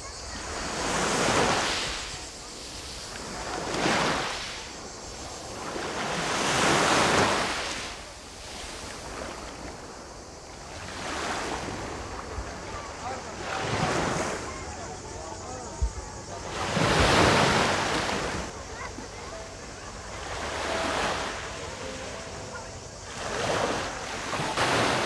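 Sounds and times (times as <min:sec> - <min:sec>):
waves washing up pebble shore: 0:00.6 - 0:10.1, 0:23.1 - 0:25.0.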